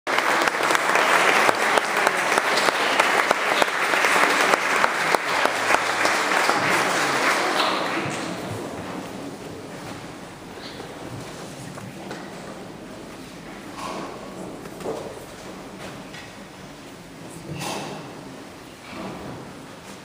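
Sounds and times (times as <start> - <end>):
audience applauding: 0.1 - 9.3.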